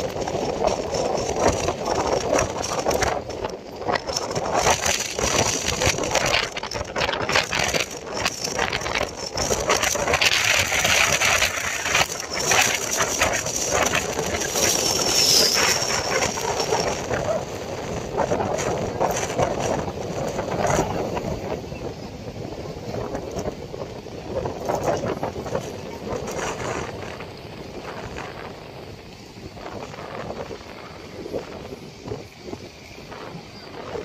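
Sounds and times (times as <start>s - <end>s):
wind buffeting microphone: 0.0s - 34.0s
thin high whine: 11.2s - 17.6s.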